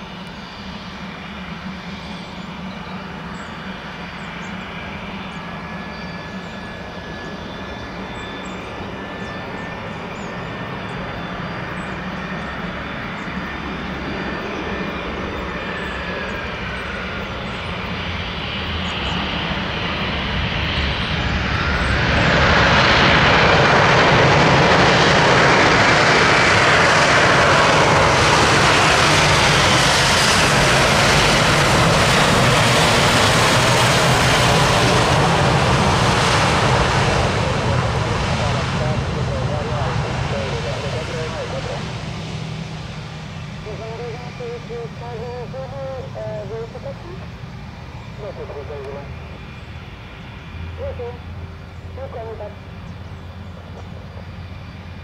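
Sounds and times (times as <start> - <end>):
jet engine roar: 0.0 - 55.0
jet engines whining: 0.0 - 55.0.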